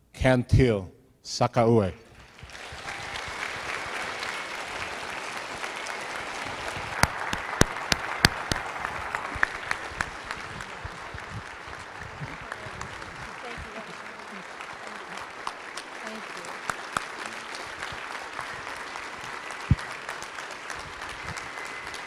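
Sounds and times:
audience applauding: 2.0s - 22.0s
sharp claps close by: 2.1s - 22.0s.

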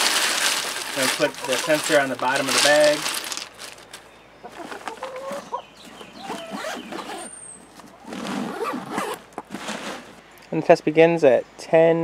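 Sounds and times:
ice cubes shifting: 0.0s - 4.0s
chickens clucking: 1.0s - 3.0s, 4.4s - 7.0s.

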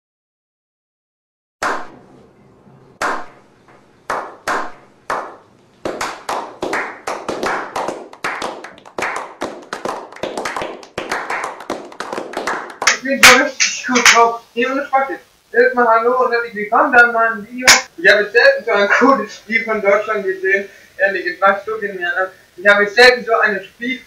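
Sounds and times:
people applauding: 4.1s - 14.3s.

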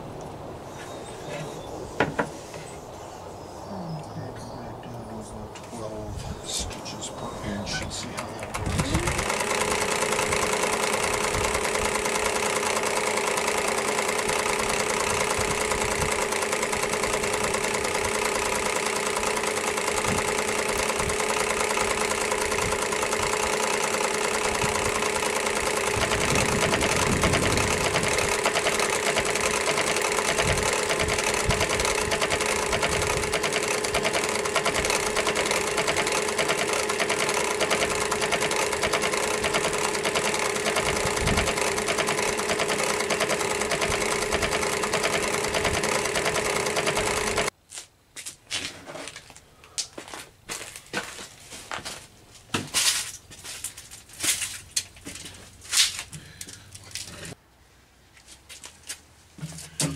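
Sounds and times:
sewing machine running: 8.1s - 47.5s.

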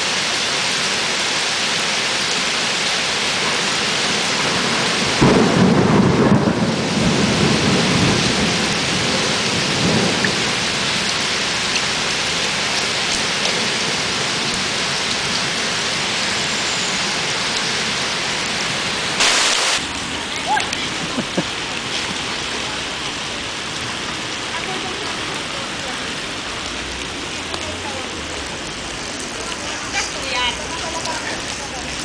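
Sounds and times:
heavy rain pouring on paving: 0.0s - 32.0s
thunder clap and rumble: 3.9s - 15.6s.

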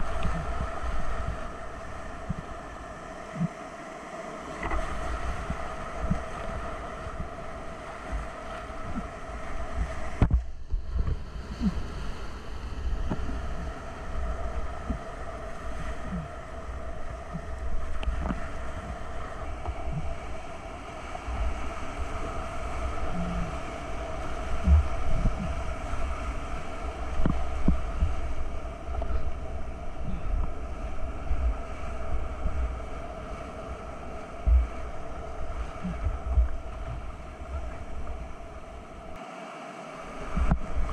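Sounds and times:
water slapping against boat: 4.4s - 11.8s, 21.2s - 39.4s
whitewater rapids churning: 12.8s - 40.9s.

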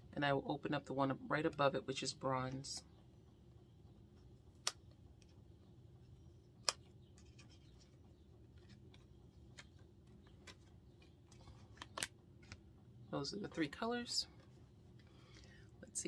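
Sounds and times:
plastic card clicks and ticks: 6.6s - 7.8s, 8.6s - 12.6s.

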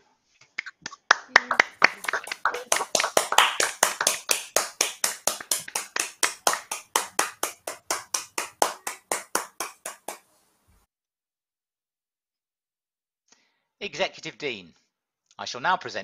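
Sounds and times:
hand clapping: 0.6s - 10.2s.

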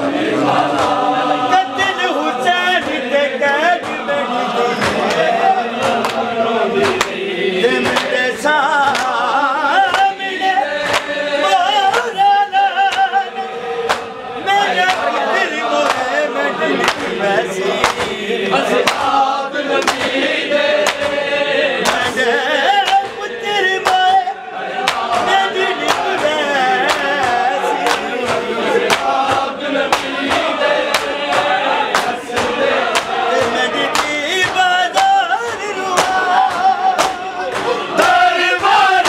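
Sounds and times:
men chanting a lament: 0.0s - 39.0s
hands slapping chests: 0.7s - 1.1s, 4.8s - 7.2s, 7.8s - 8.2s, 8.8s - 9.2s, 9.9s - 10.2s, 10.8s - 11.2s, 13.8s - 16.1s, 16.8s - 17.2s, 17.8s - 22.2s, 22.8s - 24.2s, 24.8s - 39.0s.

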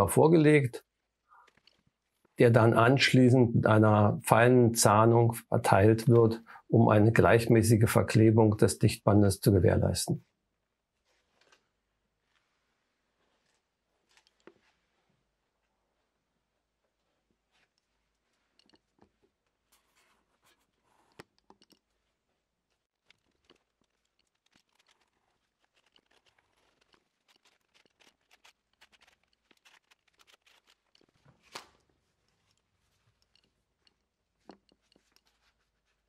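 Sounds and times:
tape rustling and scraping: 1.3s - 2.4s, 10.8s - 15.7s, 16.9s - 36.0s.

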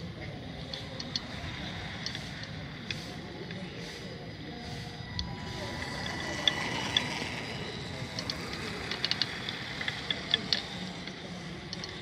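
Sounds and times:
toy truck motor whine: 5.2s - 12.0s.

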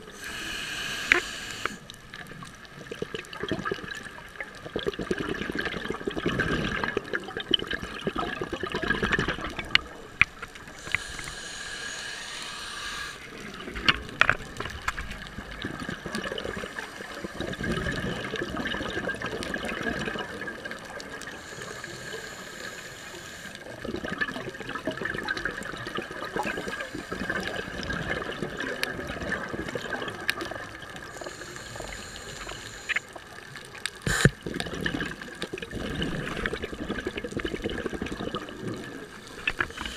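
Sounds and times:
faint steady whine: 0.0s - 2.4s, 9.6s - 15.8s, 21.2s - 23.7s, 30.9s - 33.3s
regulator inhalation hiss: 0.1s - 1.9s, 10.7s - 13.4s, 21.3s - 23.7s, 26.4s - 27.8s, 31.0s - 33.2s, 34.0s - 34.4s
bubbling exhalation: 4.6s - 10.0s, 15.4s - 20.8s, 23.7s - 31.1s, 34.0s - 39.9s.

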